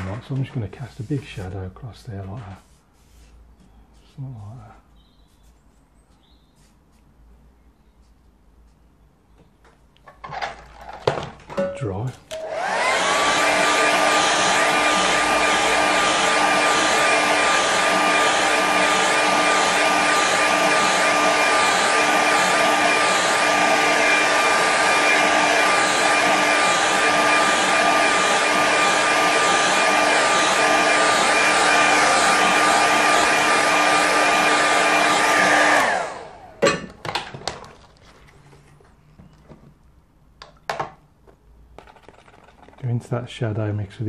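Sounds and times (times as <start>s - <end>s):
hair dryer blowing: 12.2s - 37.6s.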